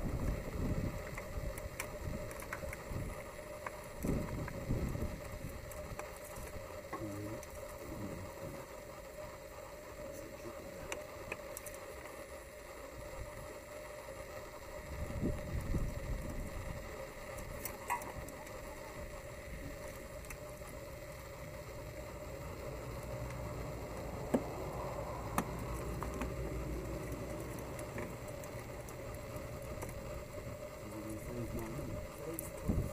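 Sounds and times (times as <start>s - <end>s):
steady low rumble: 14.7s - 32.9s.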